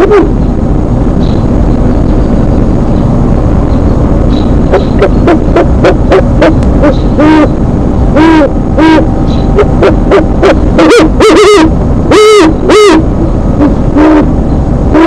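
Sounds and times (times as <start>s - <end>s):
owls hooting: 0.0s - 0.4s, 4.7s - 15.0s.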